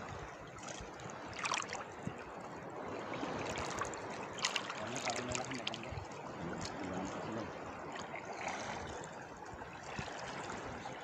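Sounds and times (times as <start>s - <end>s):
water sloshing around waders: 0.0s - 11.0s.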